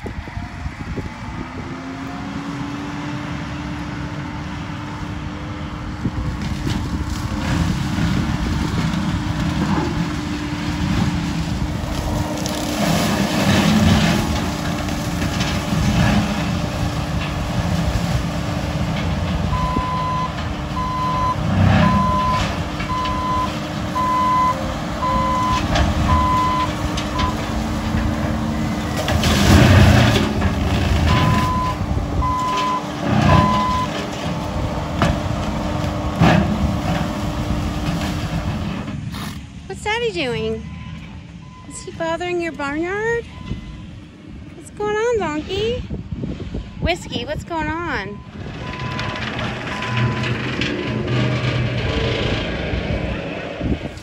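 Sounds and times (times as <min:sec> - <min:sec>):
loader engine and brush cutter hum: 0:00.0 - 0:54.0
reversing alarm beeping: 0:19.5 - 0:27.4, 0:31.1 - 0:33.9, 0:40.6 - 0:42.0, 0:43.2 - 0:44.0, 0:48.1 - 0:50.4.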